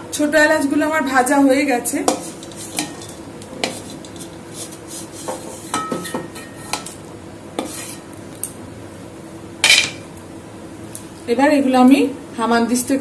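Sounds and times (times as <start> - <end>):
wooden spatula scraping metal pan: 2.0 - 6.9, 7.6 - 8.1.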